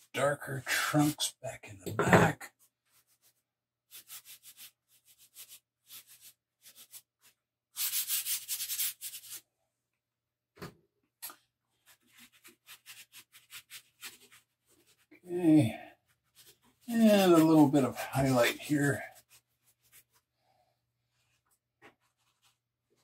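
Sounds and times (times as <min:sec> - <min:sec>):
chalk scraping on paper: 0:02.9 - 0:09.4, 0:11.8 - 0:15.2, 0:16.1 - 0:20.3, 0:22.0 - 0:22.6.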